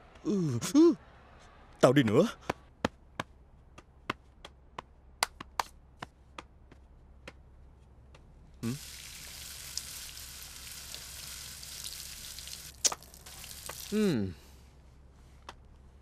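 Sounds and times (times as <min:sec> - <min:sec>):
water rushing: 0:08.6 - 0:14.0.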